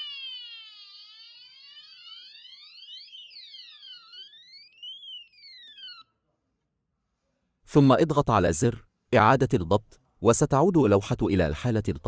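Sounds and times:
fire alarm siren sweeping: 0.0 - 6.1.

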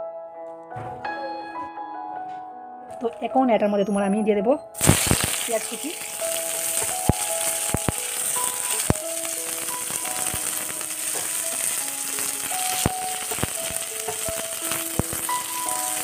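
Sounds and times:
onions sizzling in oil: 4.8 - 16.0.

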